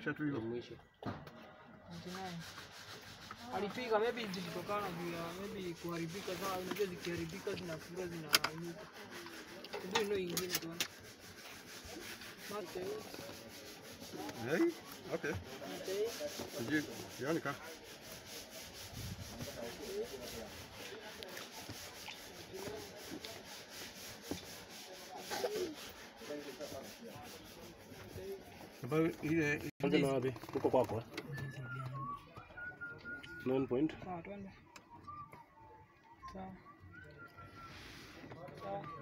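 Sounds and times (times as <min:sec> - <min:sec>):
light ticks and scratches: 0:02.0 - 0:18.2
probes scraping metal terminals: 0:05.4 - 0:11.6.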